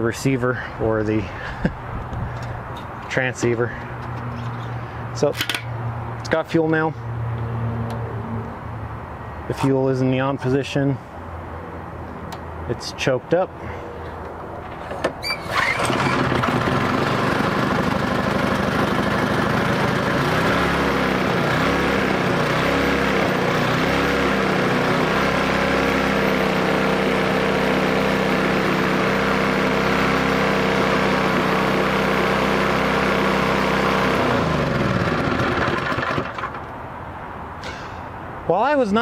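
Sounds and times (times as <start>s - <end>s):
pressure washer engine running: 15.6s - 36.7s.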